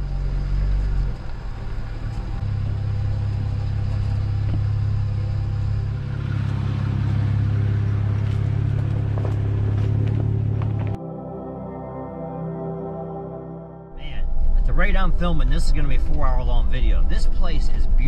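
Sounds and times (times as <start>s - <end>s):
vehicle engine droning: 0.0s - 11.1s, 11.7s - 18.0s.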